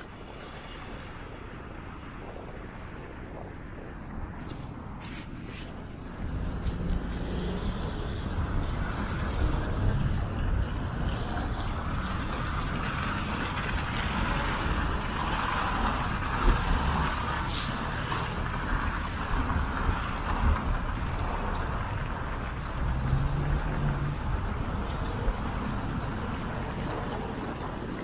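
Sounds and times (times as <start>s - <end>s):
cars driving past: 0.0s - 28.0s.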